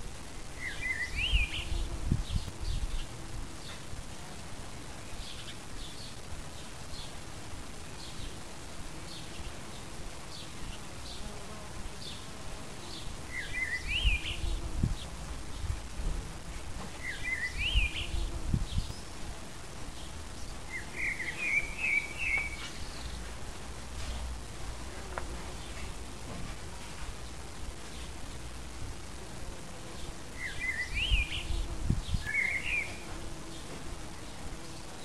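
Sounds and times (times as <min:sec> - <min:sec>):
bees buzzing: 0:00.0 - 0:05.8, 0:06.5 - 0:35.0
blackbird singing: 0:00.6 - 0:03.0, 0:13.3 - 0:14.6, 0:17.0 - 0:19.1, 0:20.7 - 0:23.1, 0:30.4 - 0:33.0.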